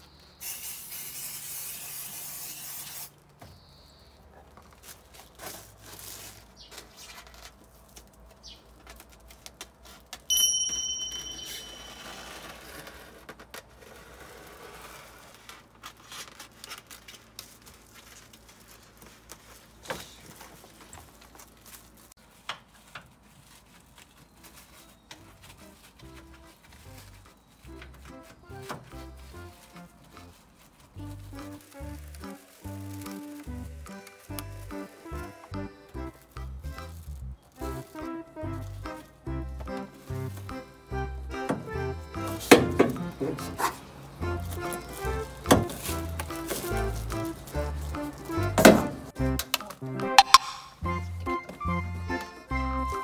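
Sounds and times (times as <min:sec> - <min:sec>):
spray can hissing: 0:00.4 - 0:03.2
scissors cutting foil: 0:00.4 - 0:03.3, 0:15.1 - 0:20.2, 0:29.0 - 0:35.3, 0:44.4 - 0:48.3
foil sheet rustling and crinkling: 0:04.3 - 0:10.3, 0:11.6 - 0:39.2, 0:43.4 - 0:49.8.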